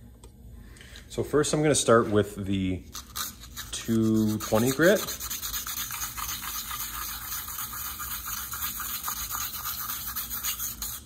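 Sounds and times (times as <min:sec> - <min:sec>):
sandpaper scratching on metal: 0:02.9 - 0:11.0.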